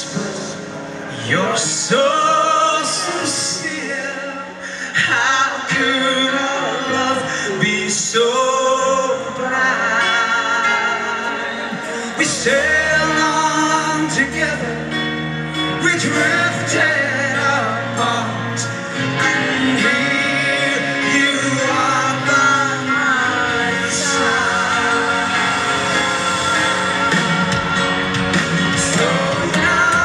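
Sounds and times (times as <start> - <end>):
male lead vocal with vibrato: 0.0 - 30.0
live rock band playing: 5.5 - 30.0
low bass notes: 12.2 - 30.0.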